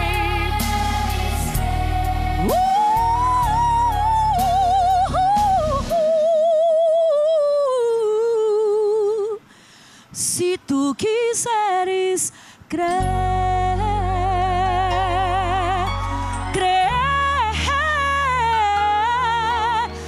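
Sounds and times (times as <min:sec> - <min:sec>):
low backing accompaniment: 0:00.0 - 0:06.0, 0:12.9 - 0:20.0
woman singing gospel: 0:00.0 - 0:09.5, 0:10.2 - 0:20.0.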